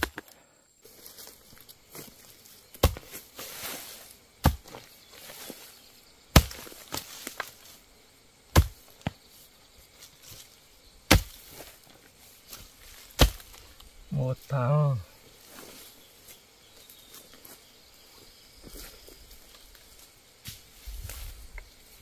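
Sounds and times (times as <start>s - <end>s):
hoe chopping into soil: 0.0s - 0.3s, 2.7s - 5.5s, 6.3s - 7.6s, 8.5s - 9.2s, 11.1s - 11.8s, 12.5s - 13.8s.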